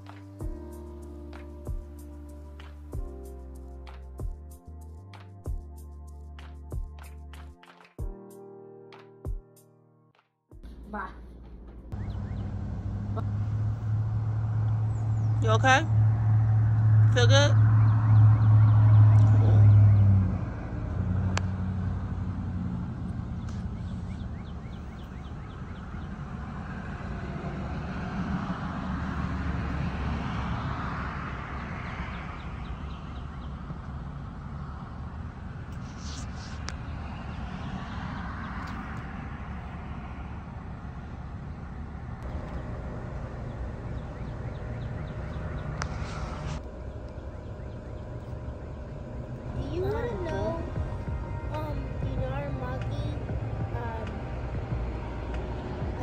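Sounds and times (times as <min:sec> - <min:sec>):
engine rumble: 0:10.6 - 0:56.0
high bird chirps: 0:12.0 - 0:12.6, 0:23.4 - 0:26.2.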